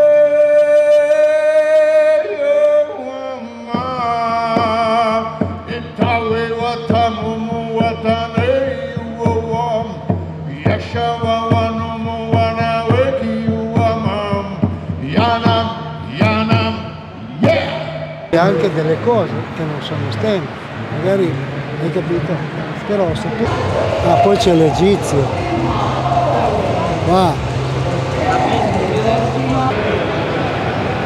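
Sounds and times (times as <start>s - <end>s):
man singing chant-like line: 0.0s - 18.7s
frame drum beating: 22.4s - 29.8s.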